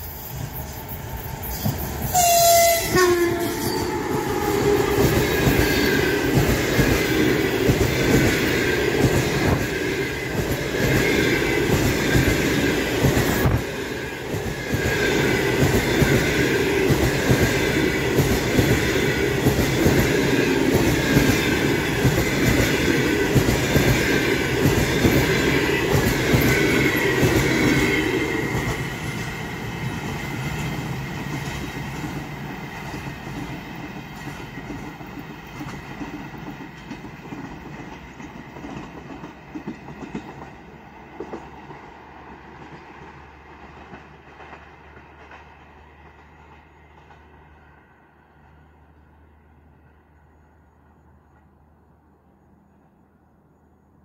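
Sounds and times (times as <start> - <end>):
train wheels clattering on rails: 0.0 - 2.3, 3.3 - 47.8
train horn: 2.0 - 6.0.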